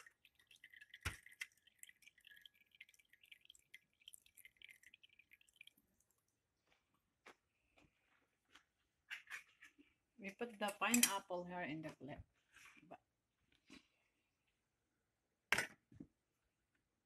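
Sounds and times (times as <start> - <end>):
juice dripping: 0.0 - 7.2.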